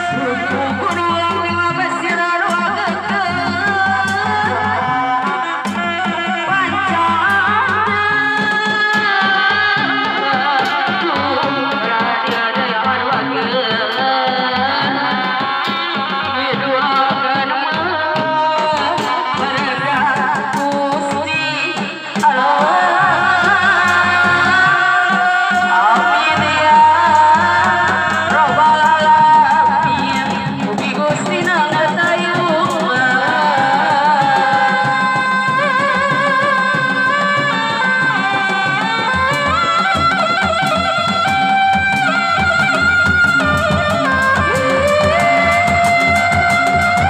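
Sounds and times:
instrumental accompaniment: 0:00.0 - 0:47.0
person singing ritual song: 0:00.0 - 0:47.0.

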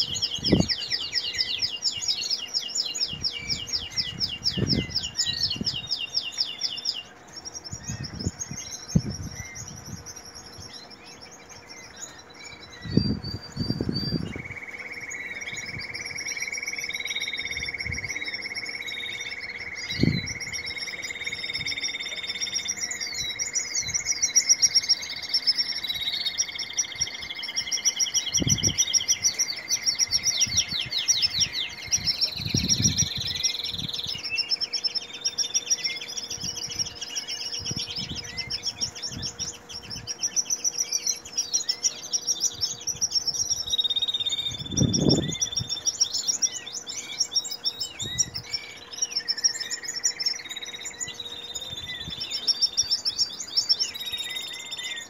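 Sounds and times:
canaries singing: 0:00.0 - 0:55.0.

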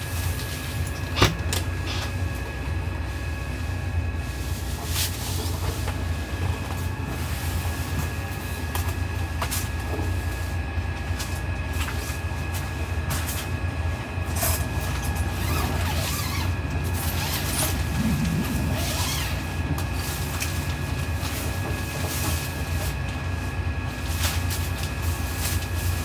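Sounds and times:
strong wind rumbling: 0:17.2 - 0:20.9.

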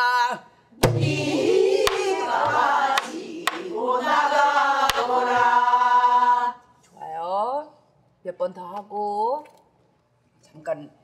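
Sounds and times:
barrel drum strokes: 0:00.8 - 0:03.7
group singing in unison: 0:00.8 - 0:06.8.

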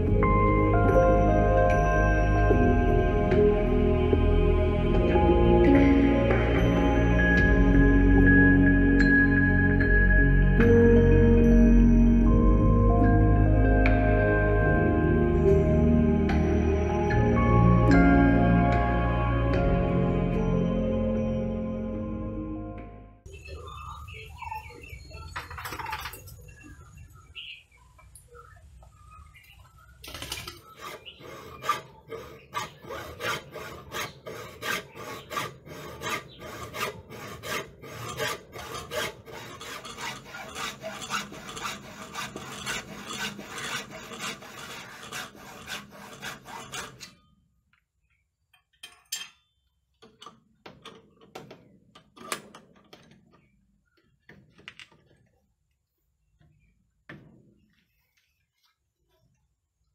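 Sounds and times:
hacksaw cutting wood: 0:30.5 - 0:47.2.

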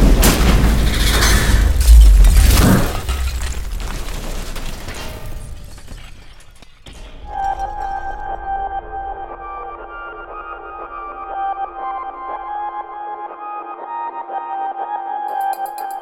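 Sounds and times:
deep rumble: 0:00.0 - 0:06.3
car crash impacts: 0:00.0 - 0:08.4
debris settling clicks: 0:00.0 - 0:08.4.

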